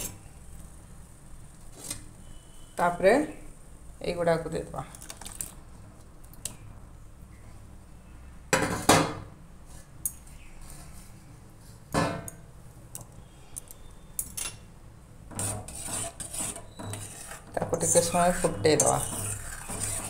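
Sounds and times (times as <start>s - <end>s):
utensils clanking on saucepan: 15.3s - 20.0s.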